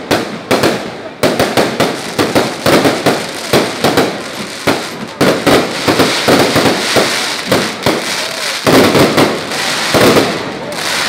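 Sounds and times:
fireworks bangs and crackles: 0.0 - 11.0.

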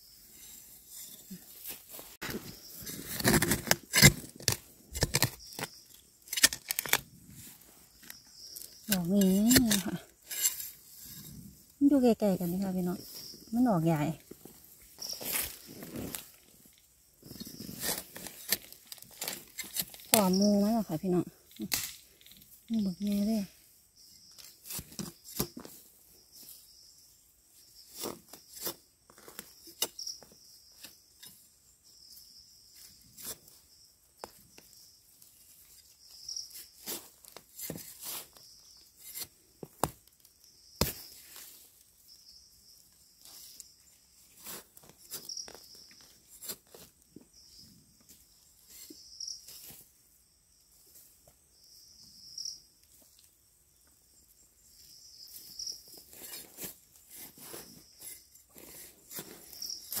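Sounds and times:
insects trilling: 0.0 - 60.0
dry leaves and stems snapping: 3.2 - 7.0.

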